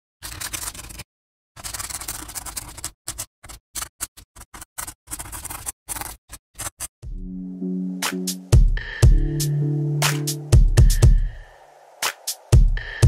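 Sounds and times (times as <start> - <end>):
pen scratching on paper: 1.6 - 6.9.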